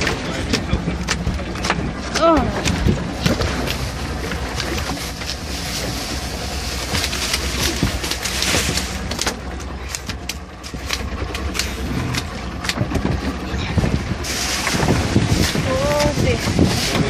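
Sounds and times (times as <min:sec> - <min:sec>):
boat engine idling: 0:00.0 - 0:17.0
wind on microphone: 0:12.7 - 0:17.0.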